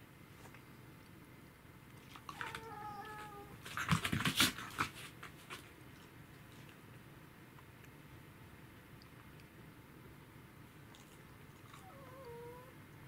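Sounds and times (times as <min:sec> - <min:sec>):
animal whining cry: 0:11.7 - 0:12.8.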